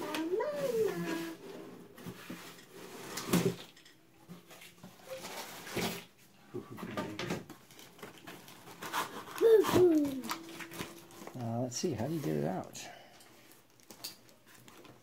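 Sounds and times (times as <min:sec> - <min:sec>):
short high voice: 0:09.4 - 0:10.6.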